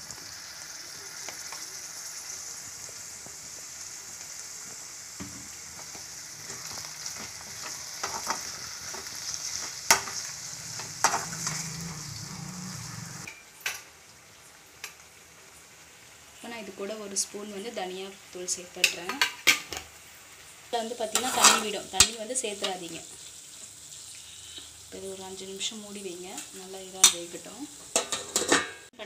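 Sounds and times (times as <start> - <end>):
prawns sizzling in hot oil: 0.0 - 29.0
ladle scraping and clinking pan: 6.5 - 12.0, 21.2 - 21.7, 27.9 - 28.9.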